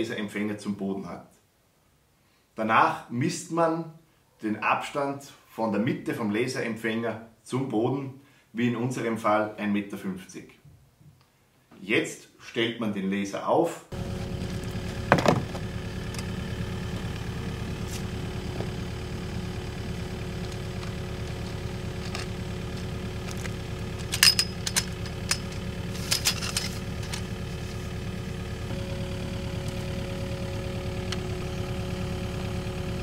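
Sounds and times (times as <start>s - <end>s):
diesel engine idling: 13.9s - 33.0s
tripod legs clicking: 20.5s - 27.4s.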